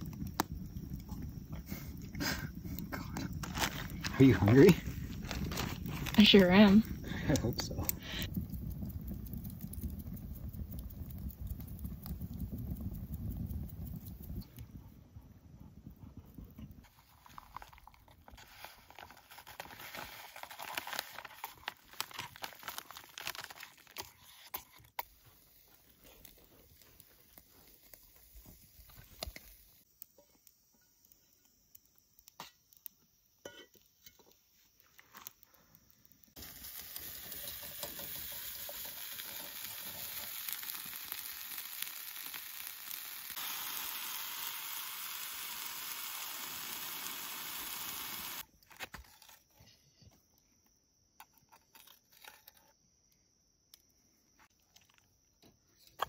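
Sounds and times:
campfire crackling and popping: 0.0s - 48.5s
steaks sizzling: 3.3s - 9.5s, 36.3s - 48.4s.

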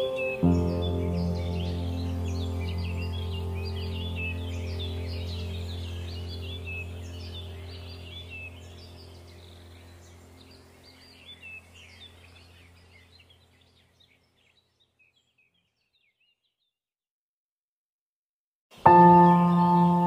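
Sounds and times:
low steady hum: 0.0s - 13.8s
birds chirping and twittering: 0.0s - 16.8s, 18.7s - 20.0s.

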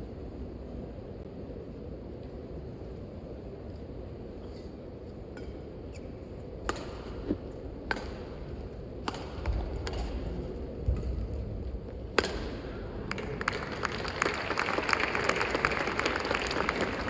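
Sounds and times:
rackets hitting shuttlecock: 6.6s - 11.4s, 12.1s - 13.3s.

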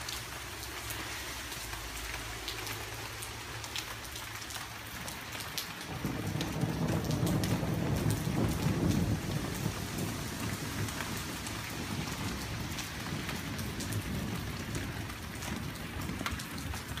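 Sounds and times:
steady rain falling: 0.0s - 17.0s
thunder rumbling: 5.7s - 17.0s.

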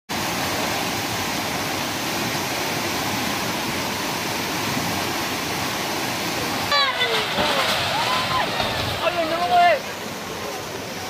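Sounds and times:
floodwater rushing: 0.1s - 11.0s.

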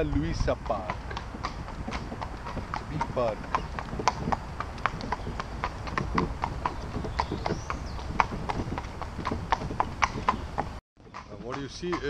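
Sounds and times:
horse hooves clip-clopping on pavement: 0.0s - 12.0s.

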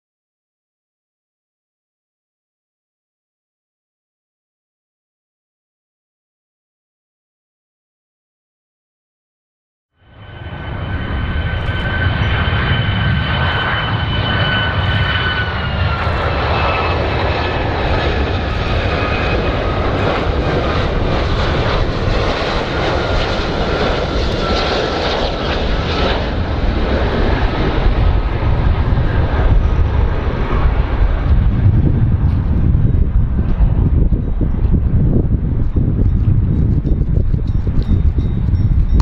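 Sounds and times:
high engine whine: 10.0s - 39.0s
jet engine rumble: 10.0s - 39.0s.

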